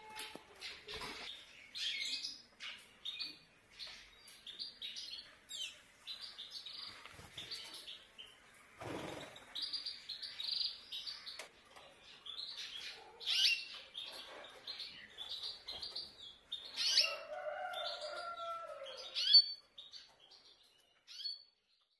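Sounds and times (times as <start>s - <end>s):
birds chirping: 0.0s - 21.9s
bird song with held notes: 9.6s - 21.9s.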